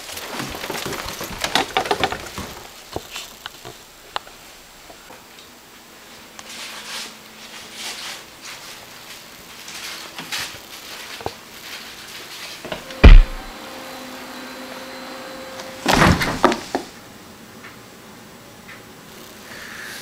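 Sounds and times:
faint shuffling and handling: 6.0 - 12.7
loud thump: 13.0 - 13.5.

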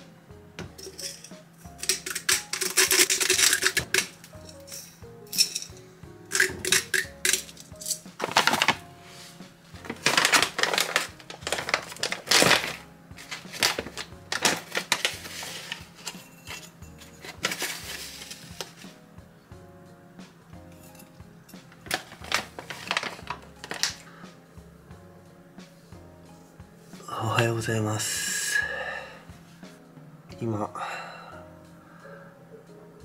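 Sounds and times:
background music: 0.0 - 33.0
plastic pouch rustling: 1.9 - 4.2, 6.3 - 19.0, 21.7 - 24.0.

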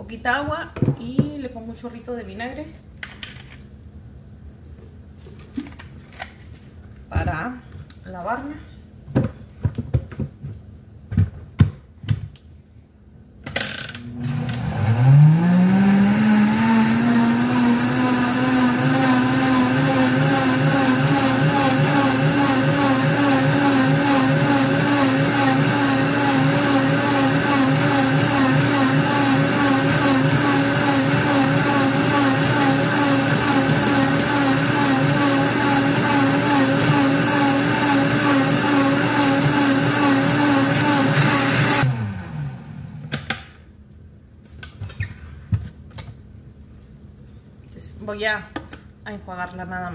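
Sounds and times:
blender motor running: 14.0 - 43.1
water churning in blender jar: 15.0 - 41.8.

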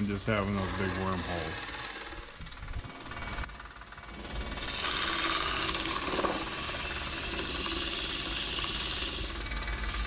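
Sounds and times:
sandpaper hissing on spinning wood: 0.0 - 2.4, 4.5 - 10.0.

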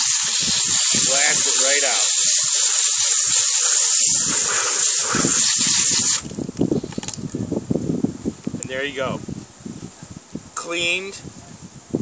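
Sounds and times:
hose nozzle water spray hiss: 0.0 - 6.4.

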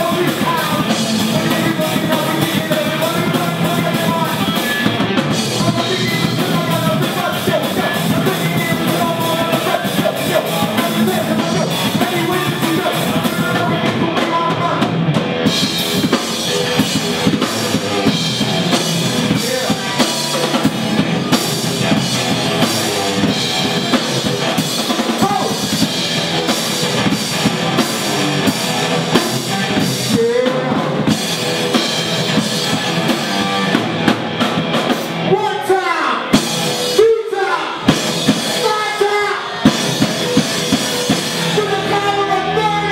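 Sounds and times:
person singing: 0.0 - 14.9, 19.1 - 24.5, 29.0 - 31.2
drum kit playing fast: 0.0 - 42.9.

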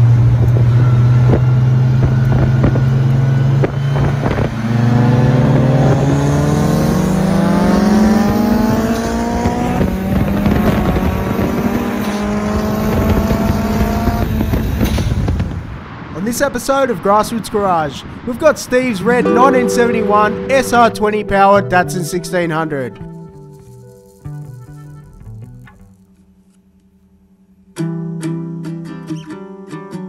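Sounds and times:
turbocharged car engine accelerating: 0.0 - 15.4.

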